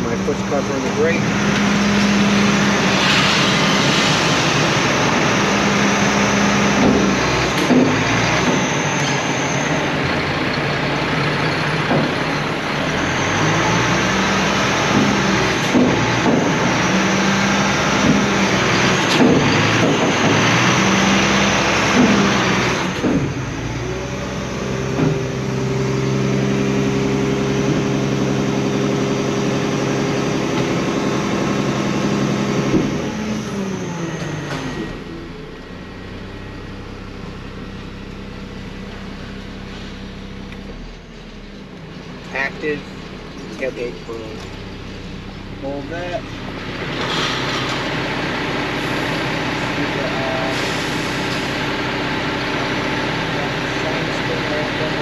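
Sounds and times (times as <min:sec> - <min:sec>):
garbage truck engine running: 0:00.0 - 0:55.0
loud broad rushing noise: 0:00.6 - 0:10.0.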